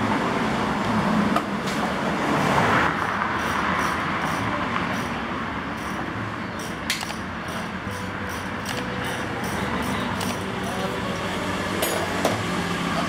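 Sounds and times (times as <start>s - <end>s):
street traffic noise: 0.0s - 13.0s
sharp click: 6.6s - 8.9s.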